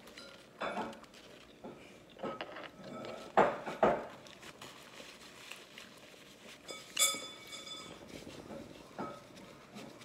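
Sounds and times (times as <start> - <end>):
ringing clink: 6.8 - 8.0.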